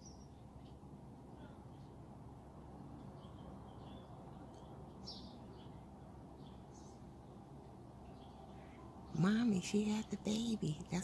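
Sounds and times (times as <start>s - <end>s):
bird chirps: 0.0s - 0.8s, 3.0s - 7.4s
low background hum: 0.0s - 11.0s.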